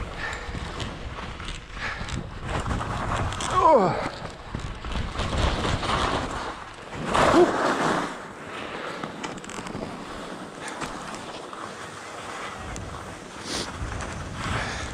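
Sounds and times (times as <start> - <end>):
wind on microphone: 0.0 - 8.3, 12.4 - 14.9
skis scraping over snow: 0.0 - 14.9.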